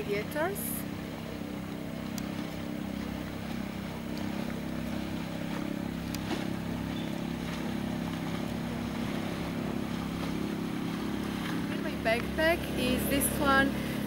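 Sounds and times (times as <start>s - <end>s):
motorboat engine droning: 0.0s - 14.0s
faint clicks: 1.7s - 2.4s, 6.0s - 6.3s.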